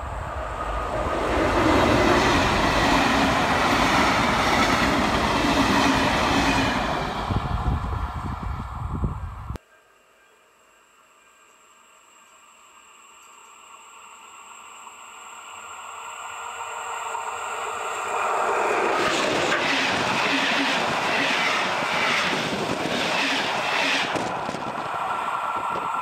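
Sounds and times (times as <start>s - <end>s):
train wheels rumbling: 0.0s - 9.1s, 16.6s - 26.0s.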